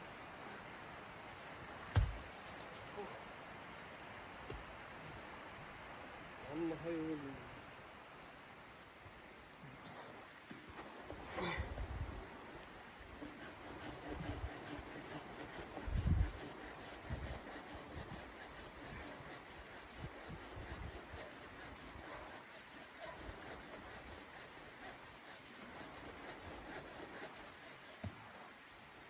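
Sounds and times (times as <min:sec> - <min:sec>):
dull low thump: 0:01.9 - 0:02.2
hand saw cutting branch: 0:13.2 - 0:28.1.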